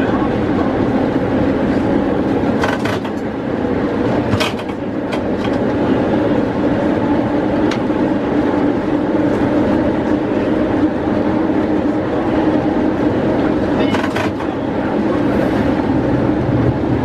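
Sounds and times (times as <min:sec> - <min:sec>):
tram running hum: 0:00.0 - 0:17.0
sharp clicks and knocks: 0:02.6 - 0:03.2.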